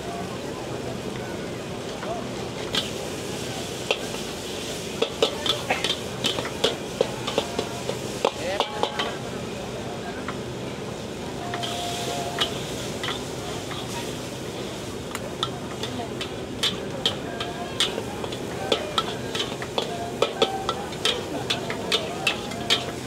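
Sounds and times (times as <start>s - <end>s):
food sizzling: 1.0s - 23.0s
spatula clanking against wok: 3.8s - 4.3s, 5.0s - 9.2s, 11.5s - 14.0s, 15.1s - 23.0s.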